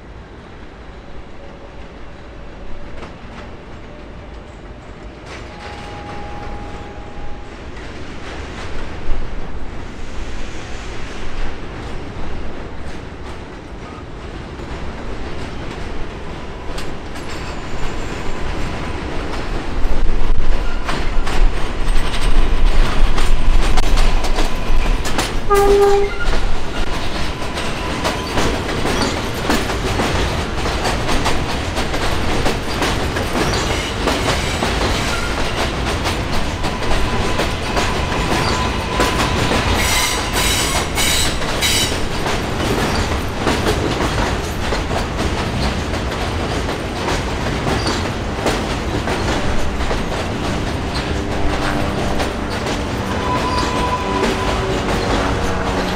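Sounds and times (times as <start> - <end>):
train rumbling on elevated track: 0.0 - 55.9
train horn blast: 5.6 - 7.5, 25.5 - 26.5, 51.2 - 55.9
wheels clattering over rail joints: 20.6 - 55.9
wheel squeal: 53.1 - 55.9.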